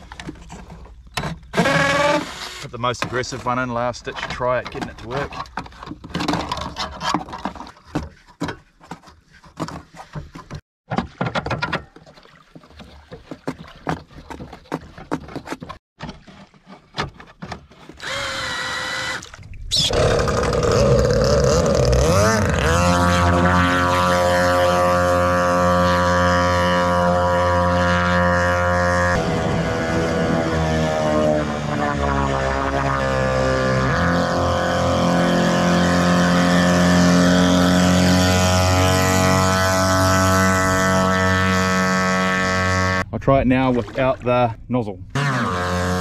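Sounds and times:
handling clicks and knocks: 2.7 - 18.0
two-stroke engines revving: 19.9 - 43.0, 45.2 - 46.0.

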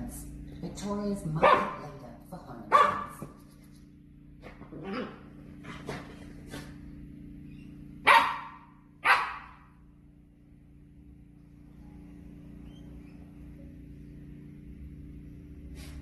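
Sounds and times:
puppy barking: 1.4 - 1.9, 2.7 - 3.3, 8.0 - 9.7.

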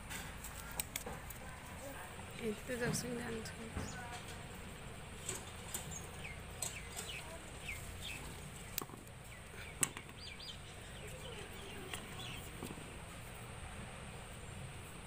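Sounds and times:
birds chirping: 2.1 - 13.4.

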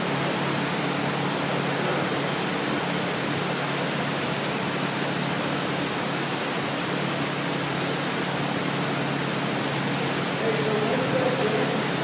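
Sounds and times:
fan rushing with low hum: 0.0 - 12.0.

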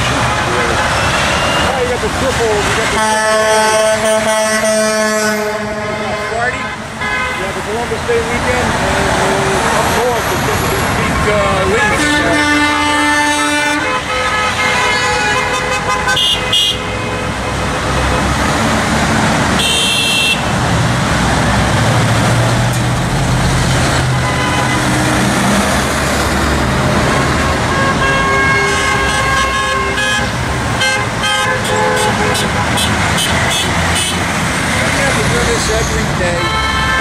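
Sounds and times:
vehicle horns honking: 0.0 - 7.9, 10.0 - 18.2, 19.5 - 20.6, 24.1 - 25.6, 26.9 - 37.0
heavy truck engine: 0.0 - 37.0
highway traffic: 0.0 - 37.0.

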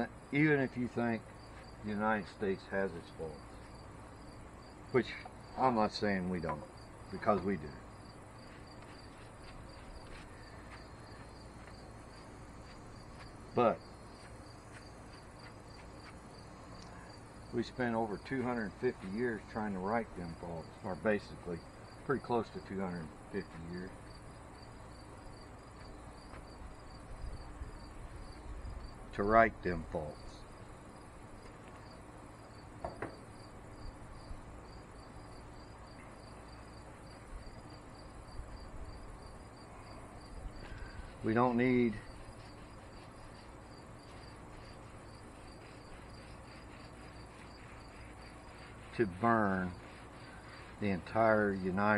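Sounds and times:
insects chirping: 0.0 - 51.9
low background hum: 0.0 - 51.9
paintbrush strokes on board: 8.4 - 16.4, 17.6 - 21.6, 22.2 - 24.0, 41.0 - 51.9.

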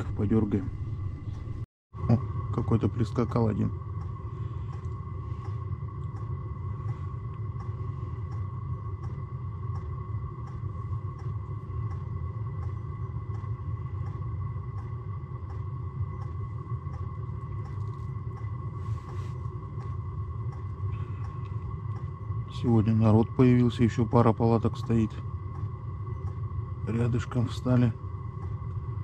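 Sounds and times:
steady low rumble: 0.0 - 29.0
thin high whine: 0.0 - 29.0.

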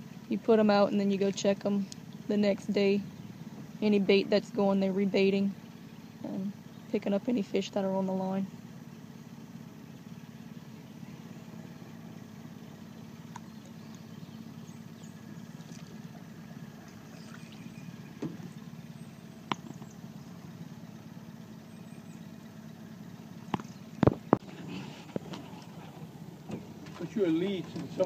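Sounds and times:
boat motor idling: 0.0 - 28.0.

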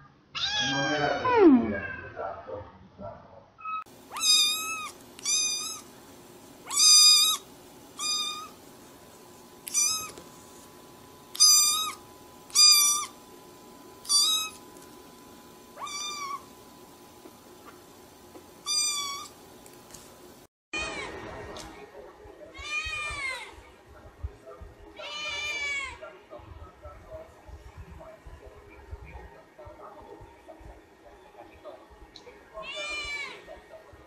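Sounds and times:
kitten meowing: 4.1 - 5.9, 6.6 - 7.4, 8.0 - 8.6, 9.7 - 10.2, 11.4 - 13.2, 14.0 - 14.6, 15.8 - 16.4, 18.6 - 19.3.

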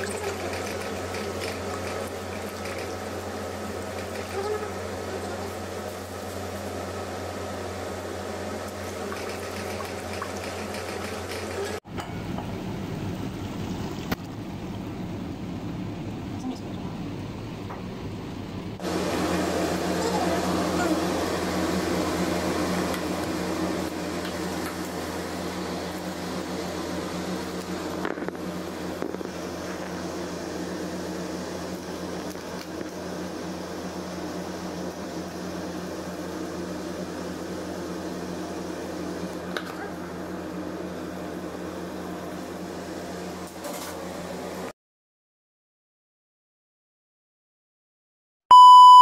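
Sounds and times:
motor humming: 0.0 - 11.8, 18.8 - 43.4.

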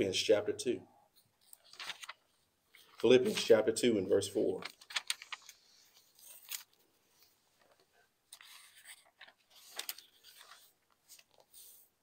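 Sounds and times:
thin pages being turned: 1.4 - 3.6, 4.6 - 11.9.

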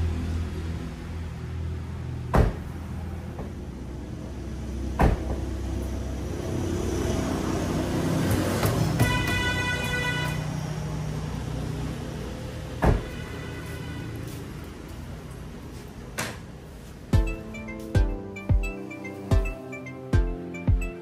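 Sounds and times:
car door thudding shut: 2.3 - 2.6.

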